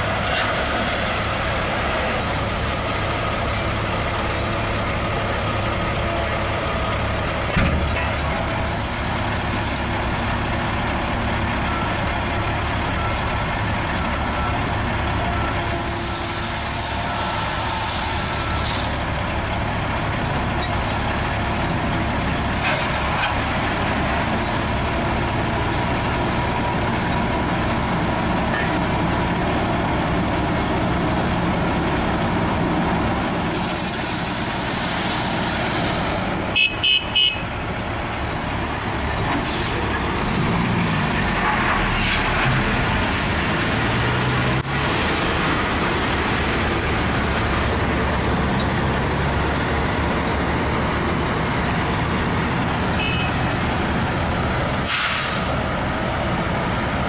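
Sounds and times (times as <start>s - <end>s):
heavy diesel engines running: 0.0s - 57.0s
long air hisses: 15.6s - 18.9s, 32.9s - 36.2s, 54.8s - 55.6s.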